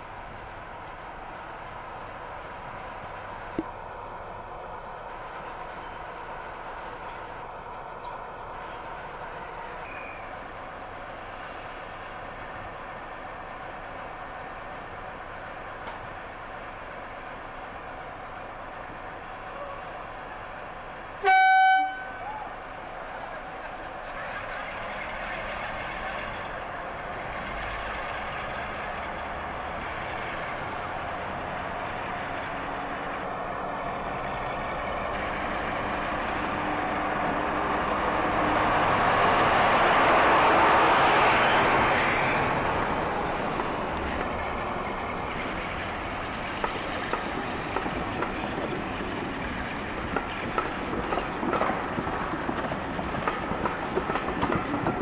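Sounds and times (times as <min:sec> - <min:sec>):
diesel locomotive engine: 0:00.0 - 0:55.0
wheel clicks over rail joints: 0:50.0 - 0:55.0.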